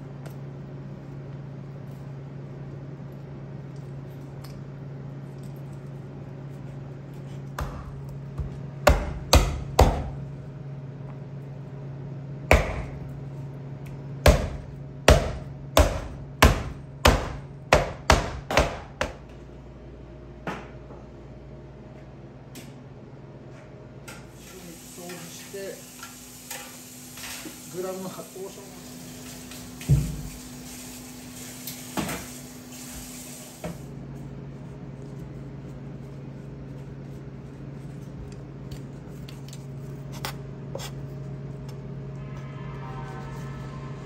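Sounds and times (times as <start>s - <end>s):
knife chopping on cutting board: 7.5s - 10.2s, 12.5s - 13.0s, 14.2s - 19.2s.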